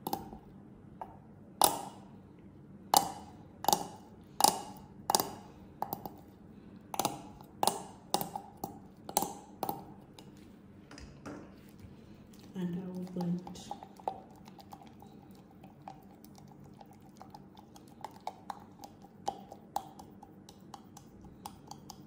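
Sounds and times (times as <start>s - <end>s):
spatula tapping a beaker: 0.0s - 0.4s, 1.0s - 2.1s, 2.9s - 6.2s, 7.0s - 10.3s, 18.1s - 22.0s.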